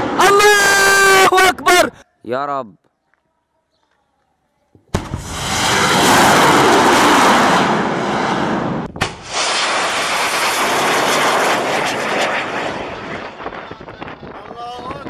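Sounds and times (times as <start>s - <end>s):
rocket motor rushing: 5.0s - 13.6s.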